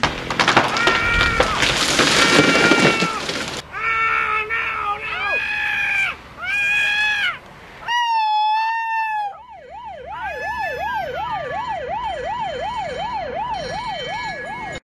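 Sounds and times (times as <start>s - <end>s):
emergency siren wailing: 3.7s - 14.8s.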